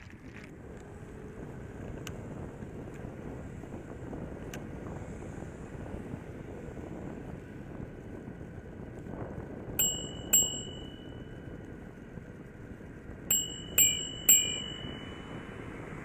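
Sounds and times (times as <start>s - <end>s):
wind and road noise: 0.0s - 16.0s
bicycle bell ringing: 9.8s - 16.0s.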